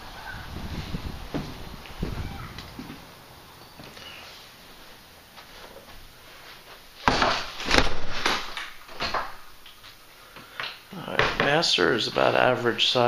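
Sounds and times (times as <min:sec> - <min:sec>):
loud knocks and scuffs: 0:07.0 - 0:09.5.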